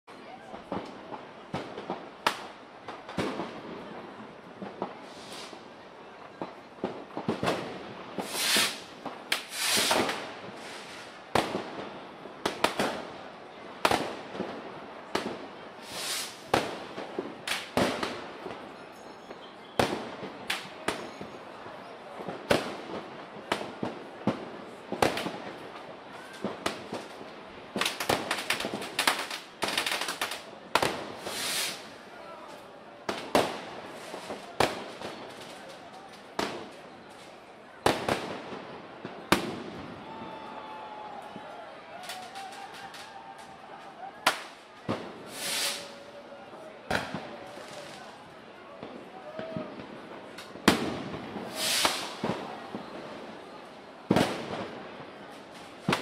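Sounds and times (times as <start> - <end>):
firecrackers banging: 0.6 - 5.7, 6.3 - 13.2, 13.8 - 19.2, 22.3 - 32.0, 37.9 - 46.2, 46.9 - 48.2, 48.8 - 53.4
fireworks hissing bursts: 5.0 - 5.7, 8.2 - 11.2, 15.8 - 16.7, 29.1 - 32.0, 44.3 - 46.1, 51.3 - 52.5.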